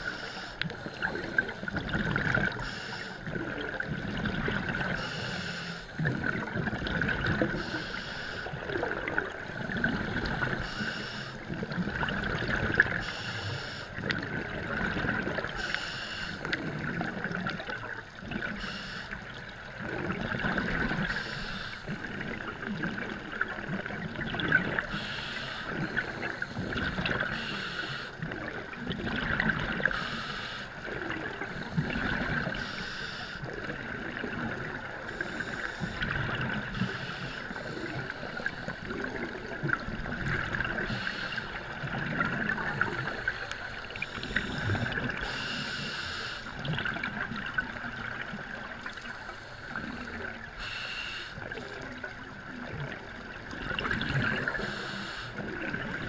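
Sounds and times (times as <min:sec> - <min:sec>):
exhaled bubbles rumbling underwater: 0:00.0 - 0:56.0
scuba regulator hiss: 0:02.6 - 0:03.2, 0:05.0 - 0:05.9, 0:07.6 - 0:08.5, 0:10.6 - 0:11.4, 0:13.0 - 0:13.9, 0:15.6 - 0:16.4, 0:18.6 - 0:19.2, 0:21.1 - 0:21.8, 0:24.9 - 0:25.8, 0:27.3 - 0:28.2, 0:29.9 - 0:30.7, 0:32.6 - 0:33.4, 0:36.7 - 0:38.8, 0:40.9 - 0:41.6, 0:45.2 - 0:46.5, 0:49.2 - 0:51.4, 0:54.5 - 0:55.4.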